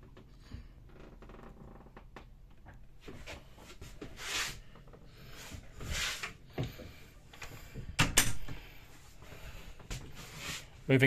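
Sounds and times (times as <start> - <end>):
soft breaths: 3.0 - 11.0.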